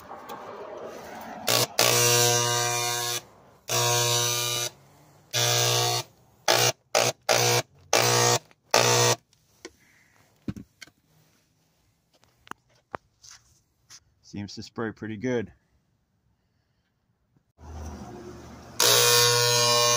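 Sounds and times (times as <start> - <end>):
electric sprayer buzzing: 1.5 - 4.7, 5.3 - 9.2, 18.6 - 19.9.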